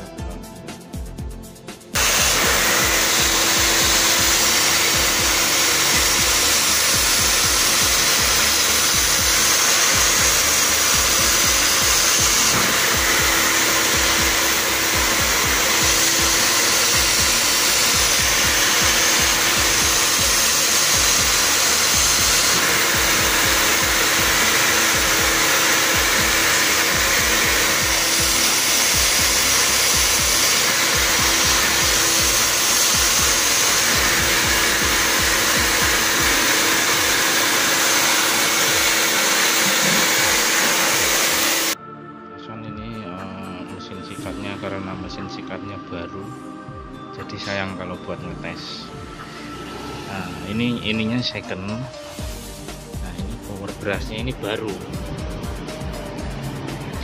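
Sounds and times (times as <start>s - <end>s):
wet vacuum rushing noise: 2.0s - 41.8s, 48.6s - 51.2s.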